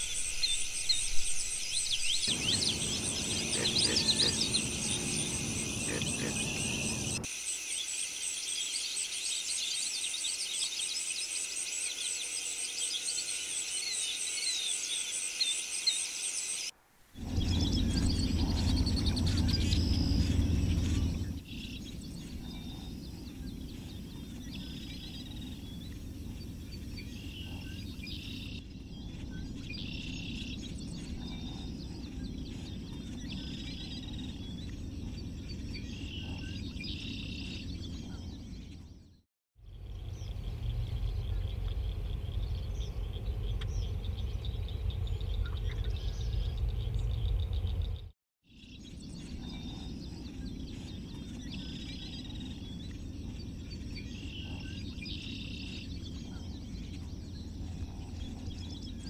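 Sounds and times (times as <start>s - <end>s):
insects chorus: 0.0s - 38.6s, 39.6s - 48.0s
birds chirping: 0.4s - 7.3s, 17.2s - 59.0s
low rumble: 2.3s - 7.3s, 17.2s - 39.0s, 39.6s - 48.1s.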